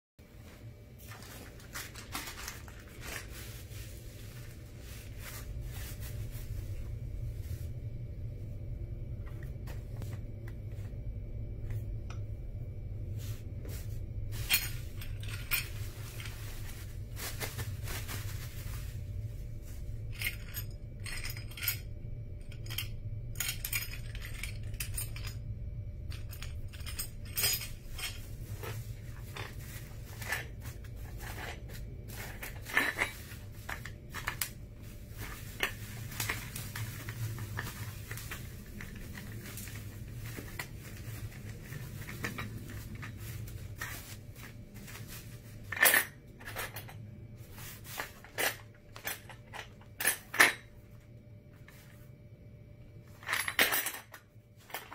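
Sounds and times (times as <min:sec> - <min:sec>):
steady low hum: 0:00.2 - 0:54.9
bubble wrap rustling and crackling: 0:00.4 - 0:07.8, 0:13.0 - 0:20.2, 0:27.7 - 0:45.7, 0:47.4 - 0:48.8
parts clicking and clinking: 0:14.4 - 0:16.8, 0:20.0 - 0:47.0, 0:47.9 - 0:50.8, 0:53.1 - 0:54.9.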